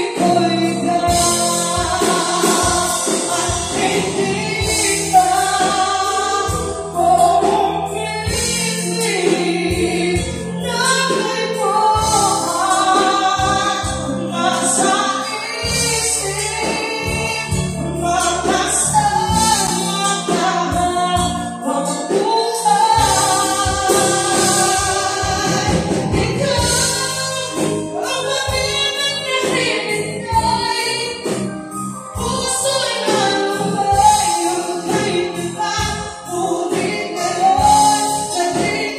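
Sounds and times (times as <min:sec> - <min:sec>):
drums: 0:00.0 - 0:38.9
women singing: 0:00.0 - 0:38.9.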